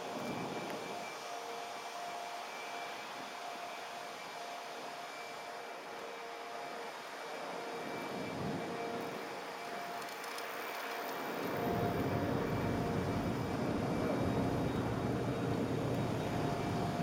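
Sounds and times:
electric motor whine: 0.0s - 17.0s
wind noise on microphone: 8.1s - 9.0s.

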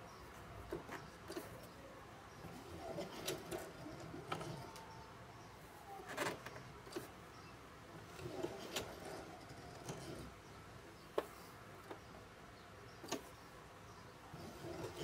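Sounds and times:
hand-crank sewing machine clicking: 2.4s - 4.9s, 8.0s - 10.4s, 14.4s - 15.0s.

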